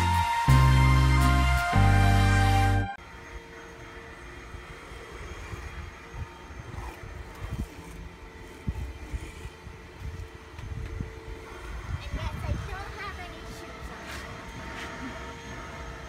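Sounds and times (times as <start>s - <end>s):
intro music: 0.0s - 3.0s.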